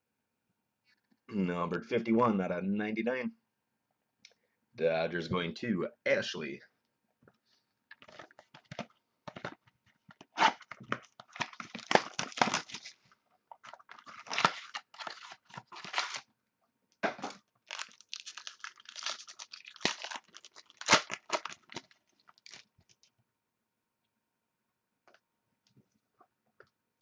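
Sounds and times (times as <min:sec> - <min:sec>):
foil pack crinkling and tearing: 0:10.5 - 0:16.3, 0:17.3 - 0:23.0.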